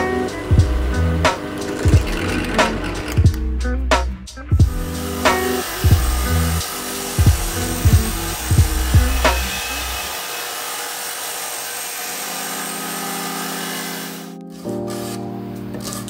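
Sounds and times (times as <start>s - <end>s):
disc sander grinding: 0.0s - 3.4s, 4.7s - 14.4s
background music with drum beat: 0.0s - 10.1s.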